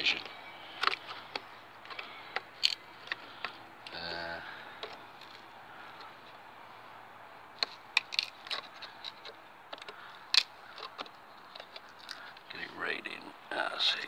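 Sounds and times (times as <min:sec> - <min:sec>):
sealing strip cracking and snapping: 0:07.6 - 0:12.4.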